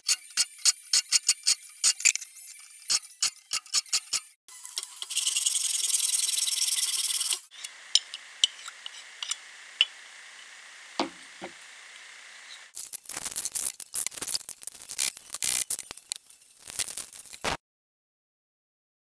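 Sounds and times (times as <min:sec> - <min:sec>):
saw blade being scrubbed: 0:00.0 - 0:07.7, 0:12.8 - 0:17.5
scraping strokes on saw blade: 0:00.0 - 0:07.8.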